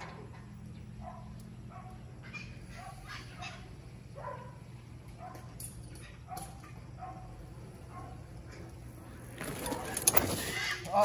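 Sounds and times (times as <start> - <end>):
distant dog barking: 1.0 - 2.0, 2.7 - 4.6, 5.2 - 5.5, 6.1 - 8.3.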